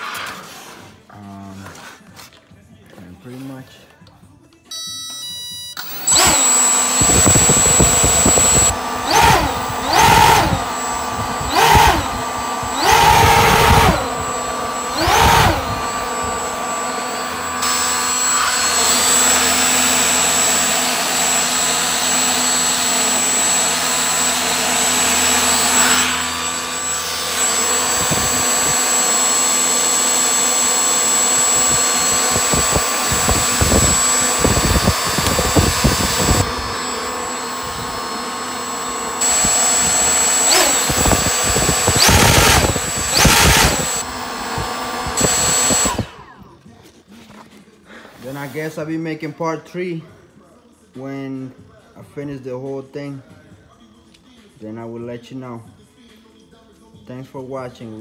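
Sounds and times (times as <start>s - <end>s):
electric motor whine: 5.8s - 46.5s.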